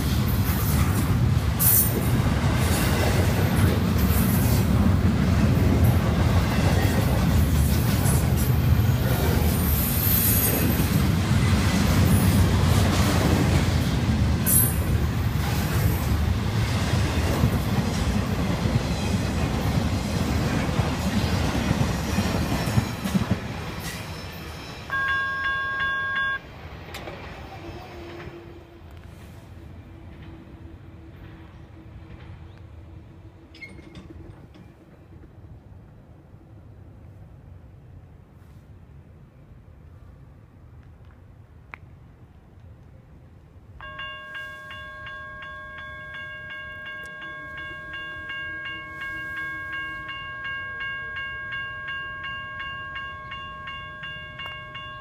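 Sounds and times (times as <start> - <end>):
train wheel clatter: 0.0 - 24.8, 33.4 - 35.7
freight train rumbling past: 0.0 - 40.8, 41.8 - 55.0.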